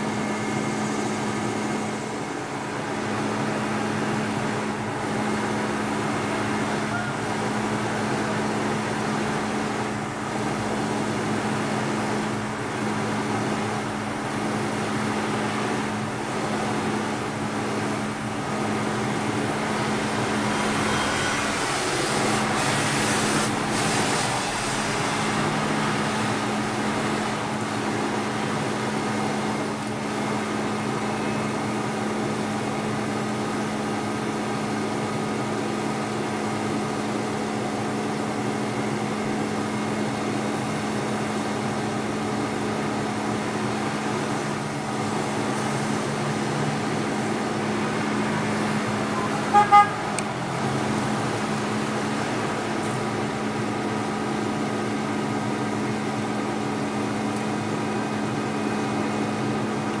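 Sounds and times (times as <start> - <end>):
truck engine running: 0.0 - 35.8
vehicle horn toots: 20.4 - 21.9, 49.2 - 50.2.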